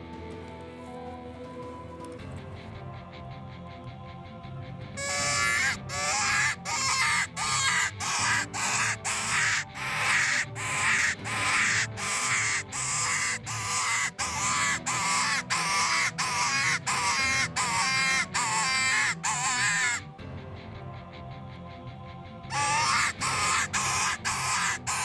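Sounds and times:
predator hand call squalling: 5.0s - 20.0s, 22.5s - 25.0s.

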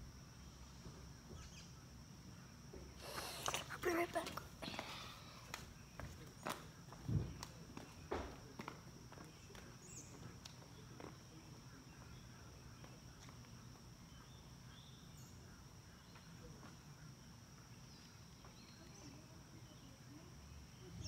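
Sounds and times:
faint bird chirps: 0.3s - 3.5s, 11.6s - 21.0s.

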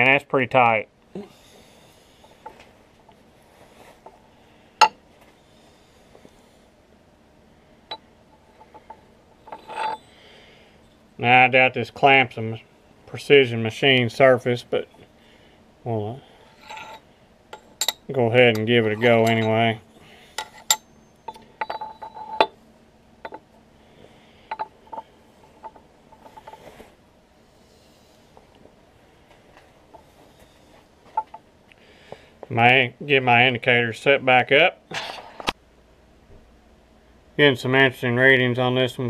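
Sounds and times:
steel clamp clinking on vise: 17.6s - 19.7s.

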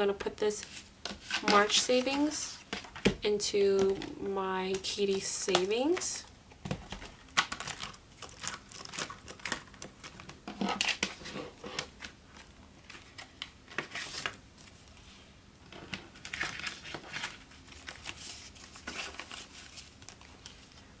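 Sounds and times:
paper rustling and crinkling: 6.7s - 15.1s, 15.7s - 21.0s.

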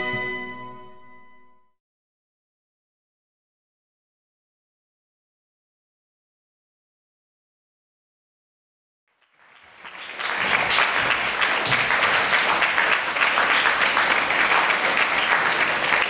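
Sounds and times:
crowd applauding: 9.1s - 16.0s.

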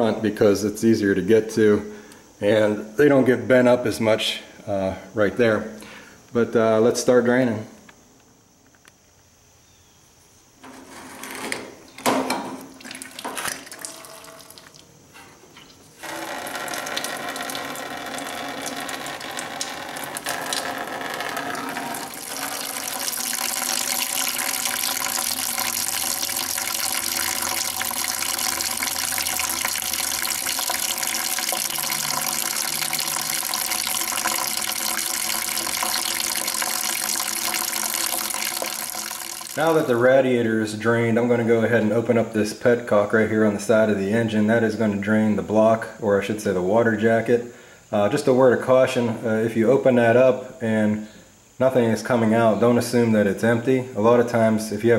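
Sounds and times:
liquid pouring into bucket: 12.6s - 14.9s, 15.6s - 40.0s.

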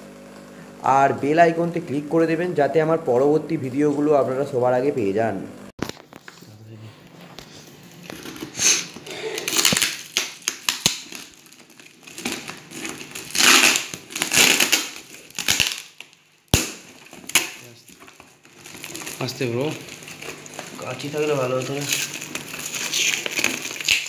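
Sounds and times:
tape and cardboard crinkling: 7.3s - 24.0s.

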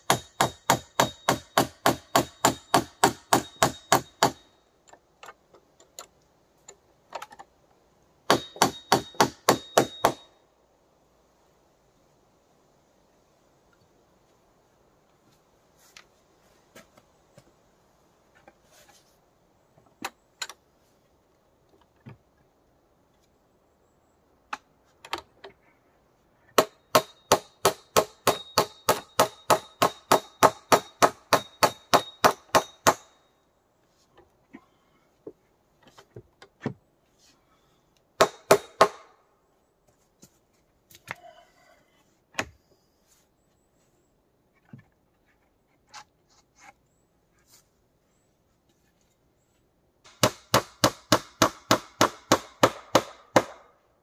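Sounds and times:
hammer blows with metallic ring: 0.0s - 4.6s, 8.3s - 10.4s, 26.6s - 33.3s.

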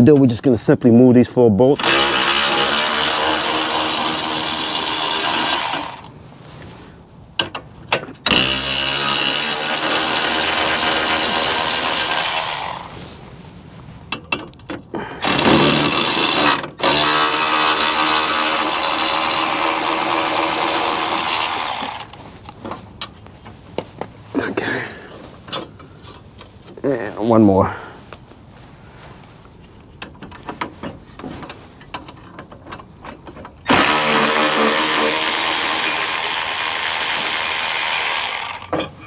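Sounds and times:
electric ratchet motor running: 1.8s - 6.1s, 8.3s - 13.0s, 15.2s - 22.2s, 33.7s - 38.7s.

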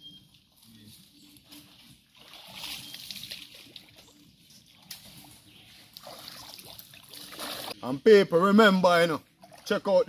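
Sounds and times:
wading through shallow water: 1.3s - 7.8s.

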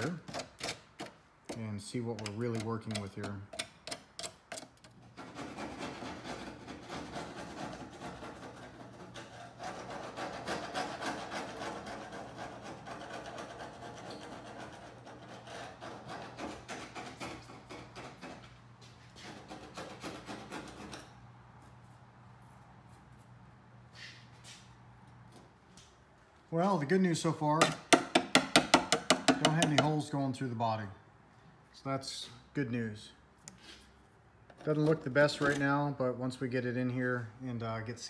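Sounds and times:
hand scraper rasping on metal: 5.1s - 18.2s.

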